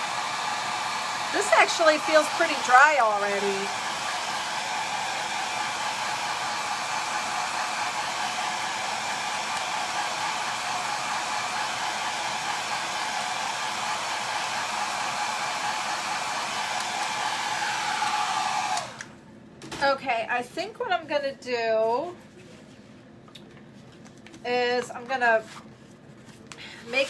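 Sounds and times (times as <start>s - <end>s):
hair dryer running: 0.0s - 19.2s.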